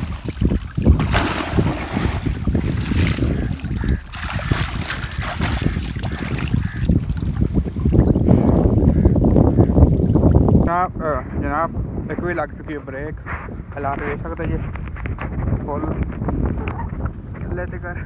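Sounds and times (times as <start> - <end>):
wind buffeting microphone: 0.0 - 18.0
water buffalo sloshing in mud: 0.8 - 6.8.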